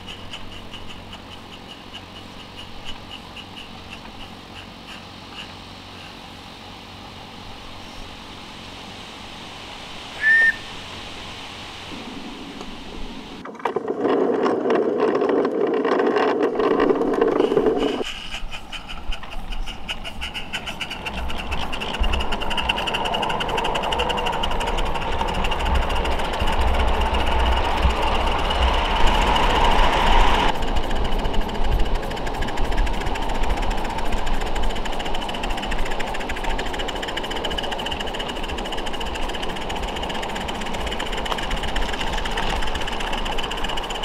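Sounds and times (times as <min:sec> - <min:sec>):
wheels clattering on track: 0:00.0 - 0:06.2, 0:12.0 - 0:44.0
steam locomotive chuffing: 0:00.0 - 0:06.3, 0:16.8 - 0:44.0
short high whistle peep: 0:10.2 - 0:10.7.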